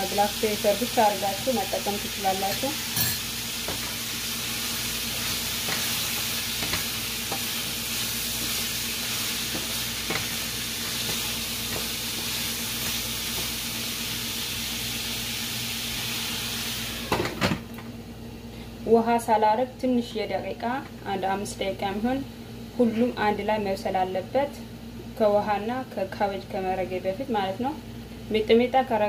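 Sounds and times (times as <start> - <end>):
vegetables sizzling in oil: 0.0 - 17.4
wooden spatula scraping and tapping: 5.1 - 7.6, 9.4 - 13.6.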